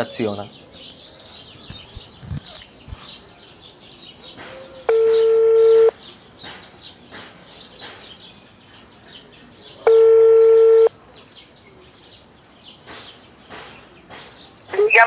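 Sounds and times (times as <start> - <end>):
birds chirping: 0.0 - 15.0
telephone ringback beep: 4.9 - 5.9, 9.9 - 10.9.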